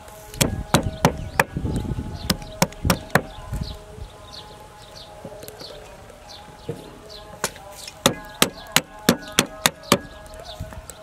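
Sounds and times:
cleaver chopping on wooden board: 0:00.4 - 0:01.6.

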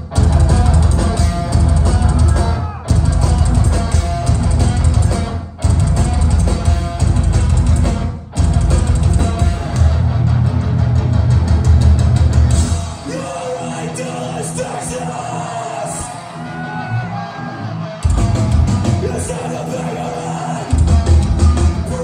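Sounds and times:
drum kit: 0:00.0 - 0:14.0, 0:18.0 - 0:19.8, 0:20.6 - 0:22.0
electric guitars riffing: 0:00.0 - 0:22.0.

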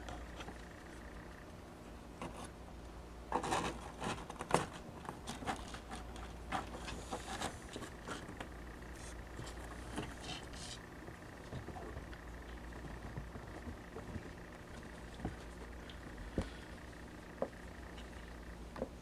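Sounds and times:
kittens' claws scratching carpet: 0:03.3 - 0:17.0.

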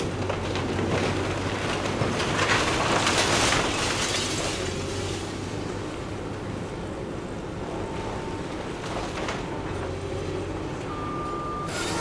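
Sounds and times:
debris crumbling and clattering: 0:00.0 - 0:05.4.

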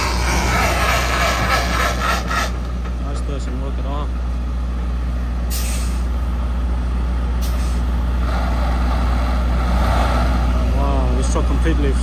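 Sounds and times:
rushing noise: 0:00.0 - 0:03.3
diesel engine drone: 0:00.0 - 0:12.0
air brake hisses: 0:05.5 - 0:06.1, 0:07.4 - 0:09.3.

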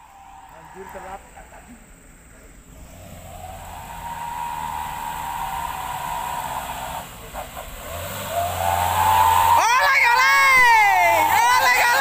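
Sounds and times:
truck engine whining: 0:02.5 - 0:12.0.

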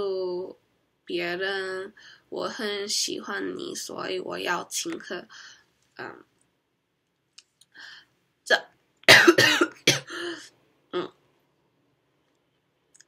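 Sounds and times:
woman coughing: 0:09.1 - 0:10.5.

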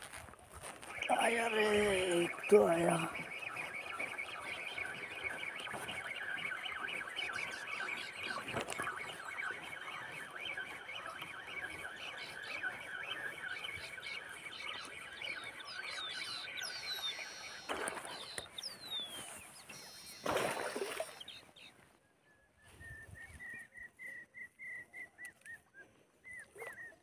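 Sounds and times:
birds chirping: 0:00.5 - 0:27.0.

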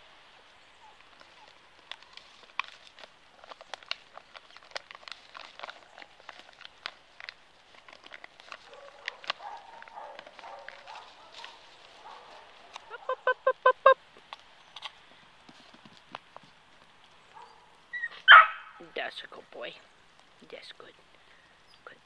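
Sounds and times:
leaves and stems crackling: 0:00.0 - 0:22.0.

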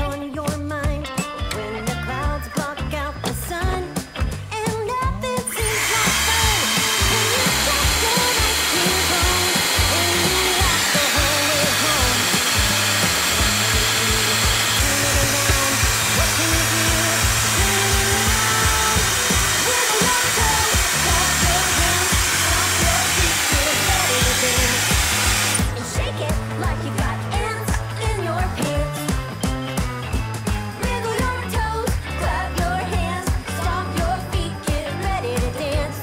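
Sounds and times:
background music: 0:00.0 - 0:36.0
hair dryer blowing: 0:05.5 - 0:31.0.

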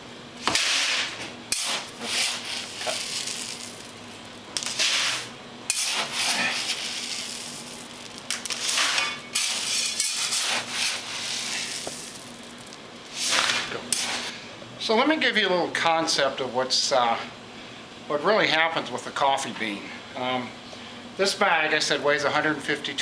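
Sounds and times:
coffee beans rattling: 0:00.6 - 0:14.3.

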